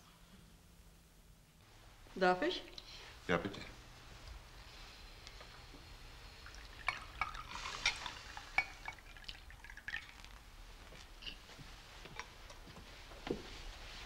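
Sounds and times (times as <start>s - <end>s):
wine pouring into a glass: 6.3s - 10.6s
glass and cutlery clinking: 6.7s - 10.2s.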